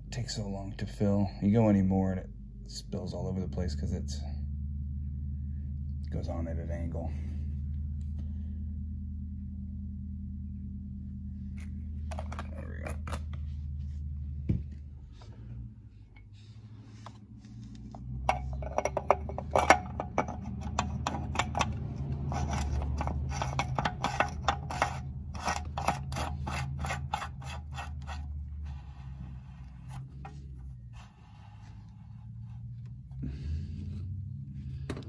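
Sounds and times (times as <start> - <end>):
steady low hum: 0.0 - 35.0
metal cap threads scraping: 18.2 - 32.7.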